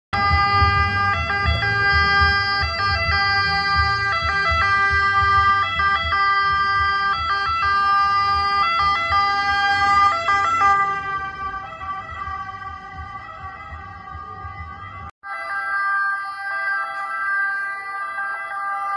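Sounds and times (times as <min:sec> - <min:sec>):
engine and road rumble: 0:00.1 - 0:15.2
ambulance siren: 0:00.2 - 0:18.9.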